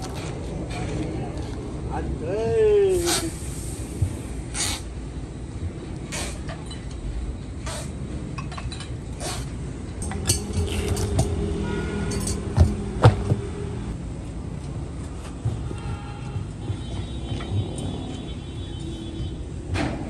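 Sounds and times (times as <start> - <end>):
steady low hum: 3.4 - 16.8
metallic clinks and knocks: 10.0 - 13.4.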